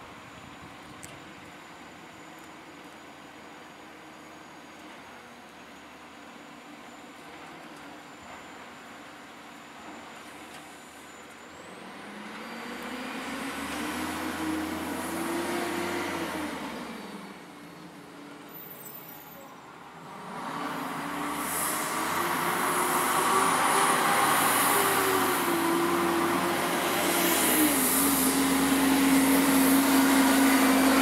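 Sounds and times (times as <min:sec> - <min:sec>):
truck diesel engine revving: 0:11.9 - 0:17.4, 0:20.0 - 0:31.0.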